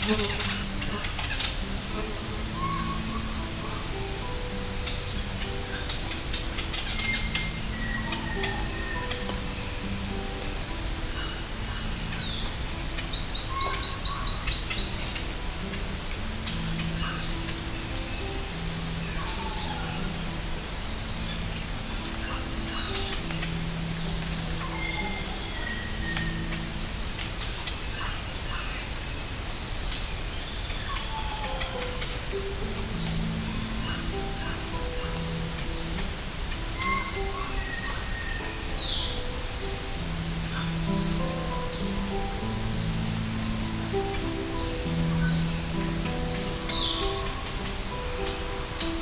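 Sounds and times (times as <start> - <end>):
high-pitched insect drone: 0.0 - 49.0
soft low music notes: 0.0 - 49.0
bird calls and whistles: 2.2 - 3.9, 6.4 - 9.4, 24.4 - 26.8, 33.0 - 39.2.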